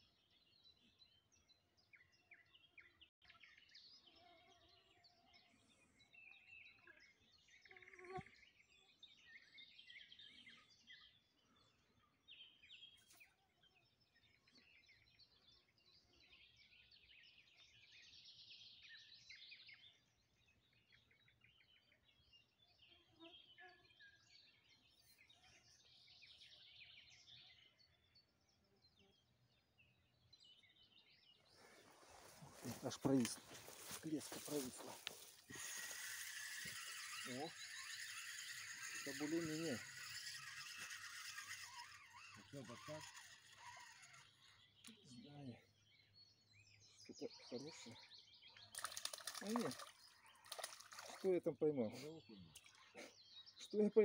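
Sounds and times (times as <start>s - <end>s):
songbirds chirping: 0.0s - 54.0s.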